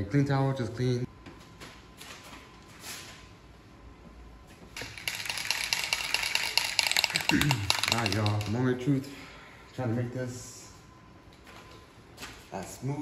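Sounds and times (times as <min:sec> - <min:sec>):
spray can being shaken: 0:04.8 - 0:08.6.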